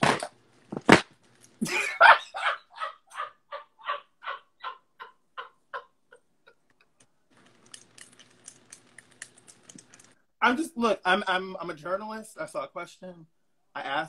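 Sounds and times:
person laughing: 1.6s - 6.6s.

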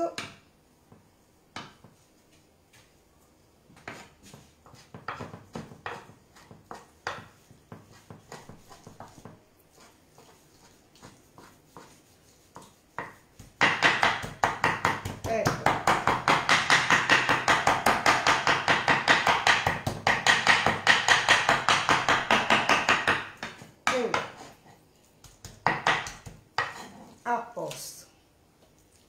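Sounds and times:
knife chopping on wooden board: 1.5s - 2.0s, 3.8s - 9.4s, 12.5s - 24.6s, 25.2s - 26.8s.

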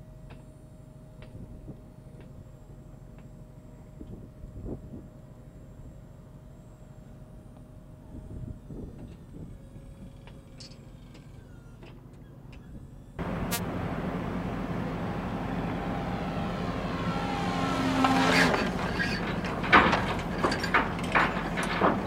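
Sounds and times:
drone engine and propeller buzzing: 13.2s - 19.4s.

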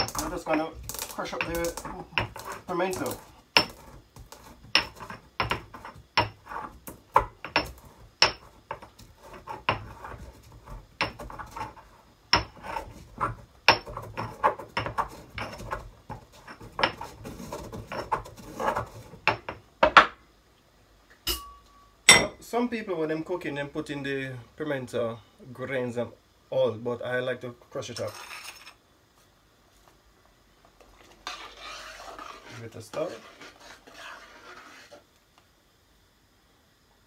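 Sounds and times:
pestle crushing berries in mortar: 0.0s - 20.2s.

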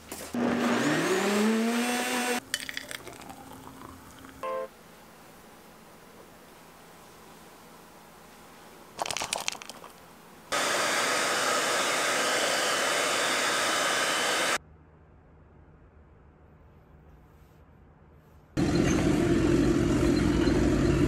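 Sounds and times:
hair dryer blowing: 0.4s - 2.4s, 10.5s - 14.6s.

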